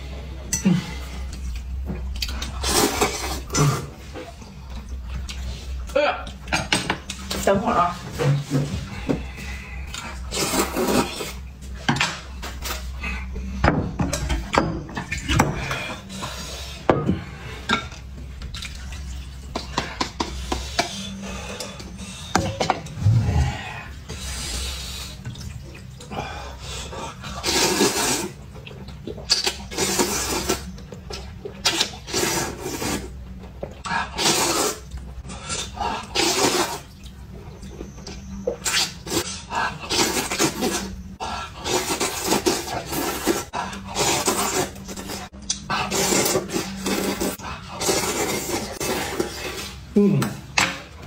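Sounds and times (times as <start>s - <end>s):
person slurping noodles: 9.9s - 11.4s, 23.0s - 25.2s, 27.4s - 28.4s, 29.6s - 30.7s, 31.7s - 33.2s, 34.0s - 36.9s, 38.7s - 40.9s, 41.5s - 49.9s.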